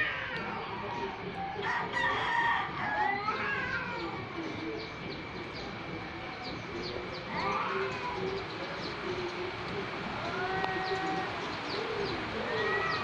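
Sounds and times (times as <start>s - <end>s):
cats yowling: 0.0s - 4.6s, 7.3s - 8.4s, 10.1s - 13.0s.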